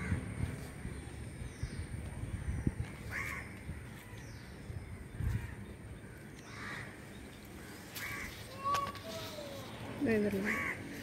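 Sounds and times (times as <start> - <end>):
crow cawing: 3.1 - 3.5, 5.4 - 7.0, 7.6 - 8.7, 10.3 - 11.0.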